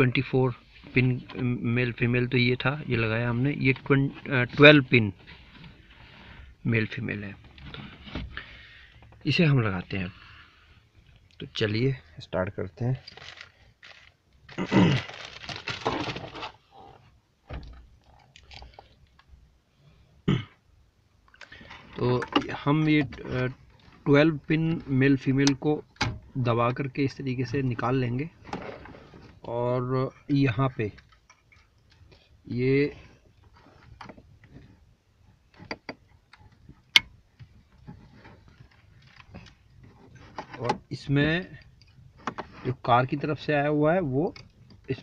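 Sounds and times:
hands rustling wiring and connectors: 12.8 - 17.2, 21.2 - 45.0.

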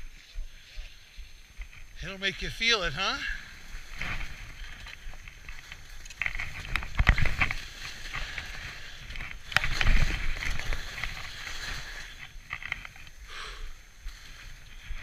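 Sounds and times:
skis hissing through snow: 7.3 - 12.4.

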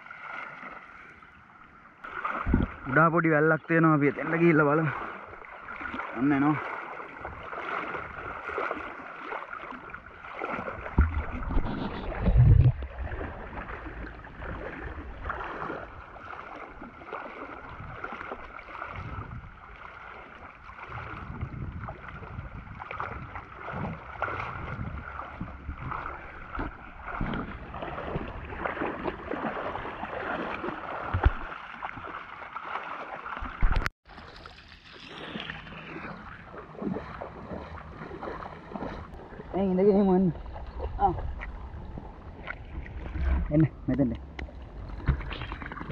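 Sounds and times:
water splashing around wading legs: 0.0 - 45.9
low thumps: 10.9 - 13.1.

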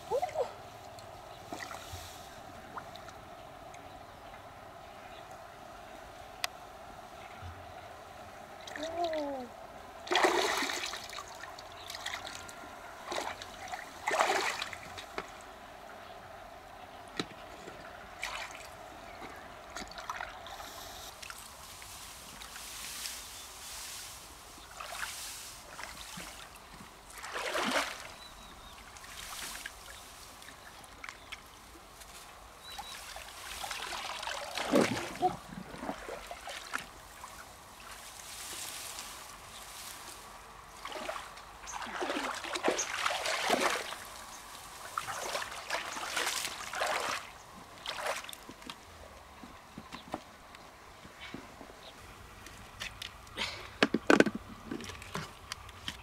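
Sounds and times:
water splashing and trickling: 0.1 - 3.8, 8.5 - 15.6, 17.1 - 48.9.

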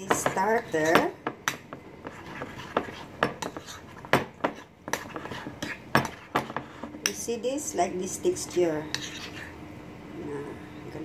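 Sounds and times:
spoon stirring thick batter: 0.0 - 9.6.

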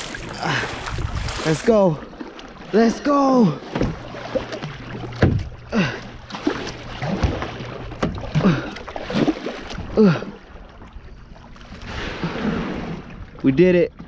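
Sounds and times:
paddle strokes and splashes: 0.0 - 14.0
paddle knocking against hull: 3.4 - 10.0.

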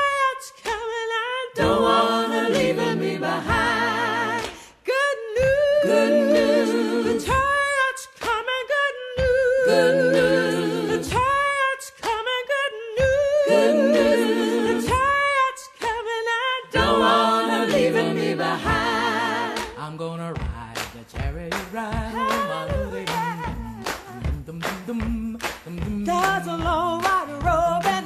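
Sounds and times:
person singing unaccompanied: 21.2 - 28.0.

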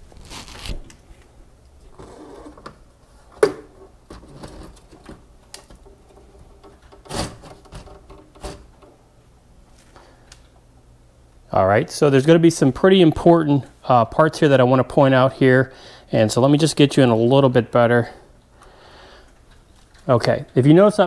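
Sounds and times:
wires rustling: 0.0 - 10.8, 19.2 - 21.0.

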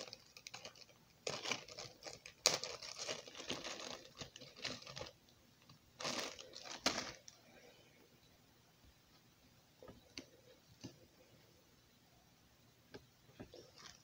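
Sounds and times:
plastic bag crinkling: 0.0 - 7.4, 13.5 - 14.0.

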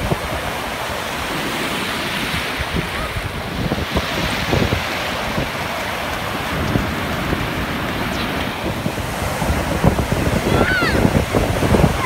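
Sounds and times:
ocean surf breaking: 0.0 - 12.0
wind buffeting microphone: 0.0 - 12.0.

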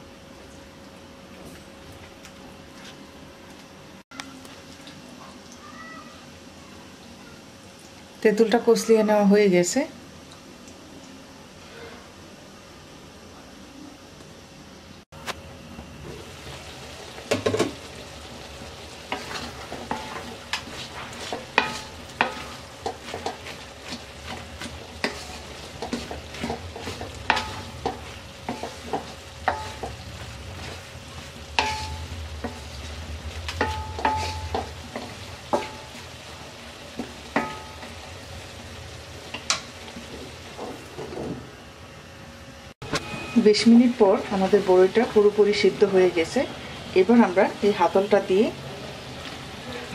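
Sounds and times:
simmering pot sizzle: 0.0 - 13.2, 14.8 - 49.9
wooden spatula scraping metal pot: 19.1 - 36.2.

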